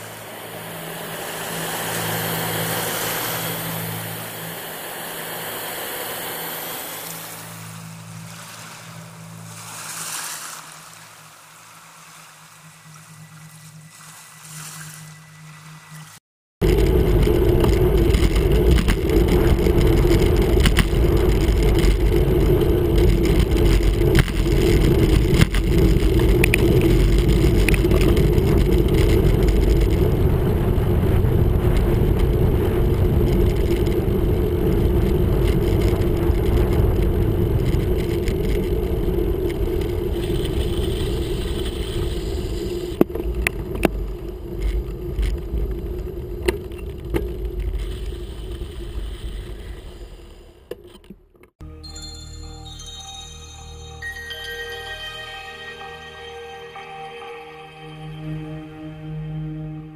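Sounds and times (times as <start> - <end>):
sharp clicks and knocks: 16.6 - 30.0
wind buffeting microphone: 16.6 - 50.1
tyres rumbling on tarmac: 16.6 - 51.6.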